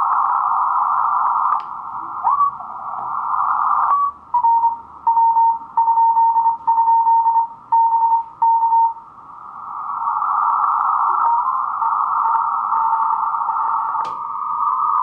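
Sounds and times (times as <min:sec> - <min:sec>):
radio band hiss: 0:00.0 - 0:05.8, 0:08.3 - 0:15.0
morse code beeps: 0:03.9 - 0:09.0.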